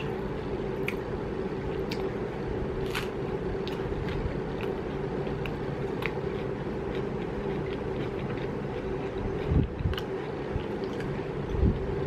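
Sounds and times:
electric fan humming: 0.0 - 12.0
chewing mouth clicks: 3.7 - 11.2.

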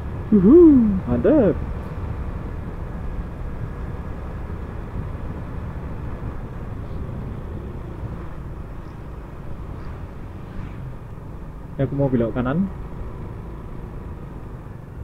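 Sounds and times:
wind rumbling on microphone: 0.1 - 11.2.

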